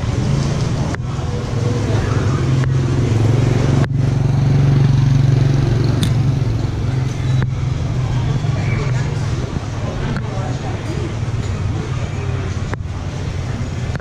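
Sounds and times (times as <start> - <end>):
motorbike engine running: 0.0 - 14.0
street noise: 0.0 - 14.0.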